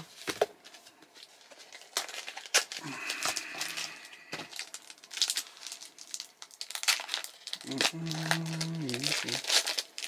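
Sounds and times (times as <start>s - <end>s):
foil wrappers crinkling: 0.0s - 10.0s
man's wordless vocal sound: 7.6s - 9.4s.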